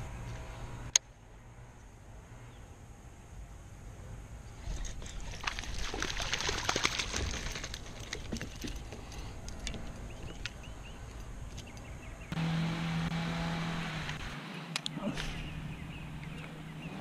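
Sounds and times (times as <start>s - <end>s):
fish splashing in water: 4.8s - 8.3s
water dripping: 5.0s - 8.7s.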